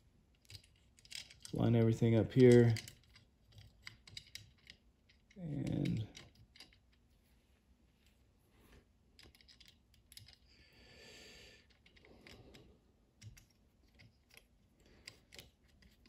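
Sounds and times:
small metal parts clicking: 0.3s - 7.0s, 9.2s - 10.6s, 11.6s - 16.0s.

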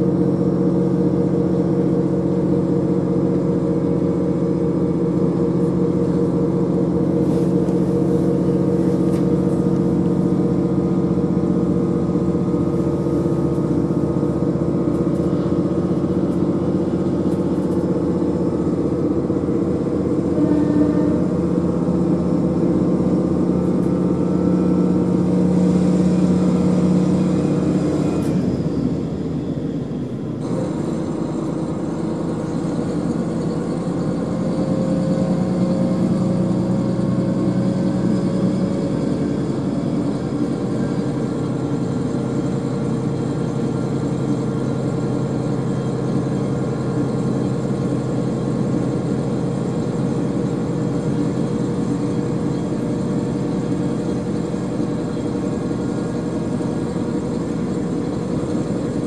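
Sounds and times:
diesel engine running: 0.0s - 59.0s
wheel and rail noise: 0.0s - 59.0s.

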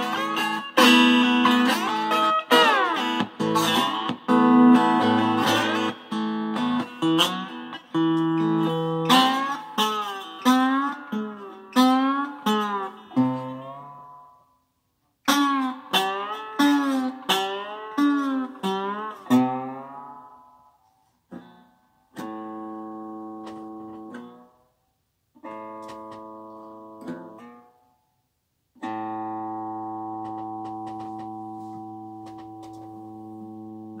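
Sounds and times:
electric guitar chords ringing: 0.0s - 14.4s
lap steel guitar notes with slides: 0.0s - 14.4s, 15.3s - 20.6s.

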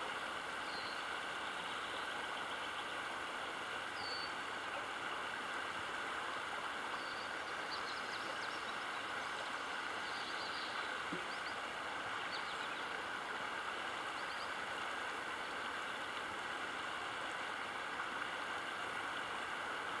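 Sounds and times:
floodwater rushing: 8.7s - 20.0s.

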